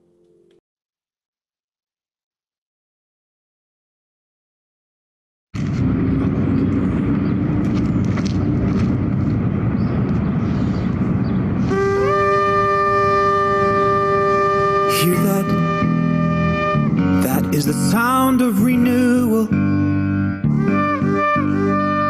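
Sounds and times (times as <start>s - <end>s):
ram's horn blasts: 11.6s - 17.6s.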